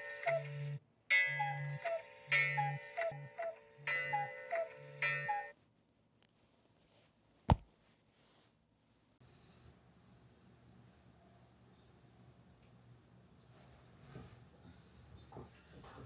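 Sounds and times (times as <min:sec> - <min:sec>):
phone alarm chiming melody: 0:00.0 - 0:05.5.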